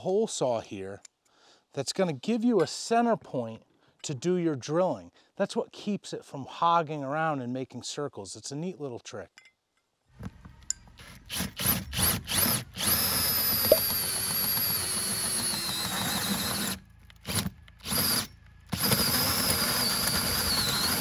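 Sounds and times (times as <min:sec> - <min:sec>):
cordless drill with hole saw: 0:10.9 - 0:21.0.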